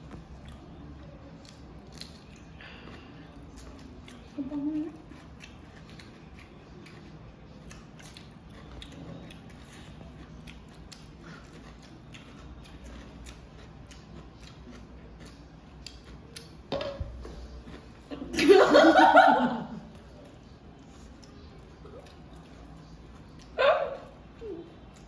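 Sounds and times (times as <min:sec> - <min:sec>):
chewing with mouth clicks: 0:00.1 - 0:18.3, 0:19.9 - 0:25.0.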